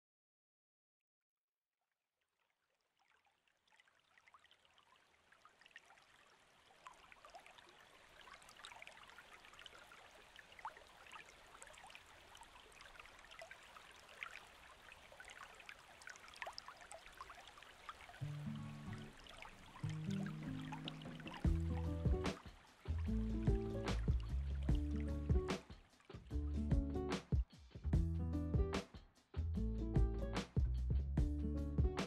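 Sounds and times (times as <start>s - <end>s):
water trickling and dripping: 2.4s - 27.0s
low music notes: 19.8s - 25.6s, 26.3s - 27.2s, 29.6s - 32.0s.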